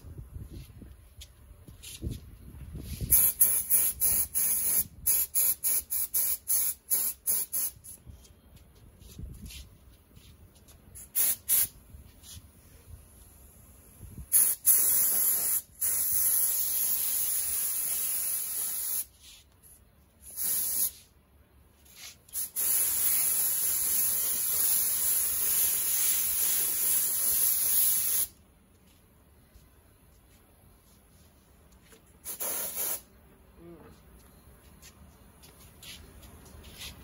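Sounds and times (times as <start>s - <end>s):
paint spray gun hissing: 3.1s - 8.0s, 11.0s - 11.8s, 14.3s - 19.1s, 20.2s - 21.0s, 22.3s - 28.3s, 32.2s - 33.1s.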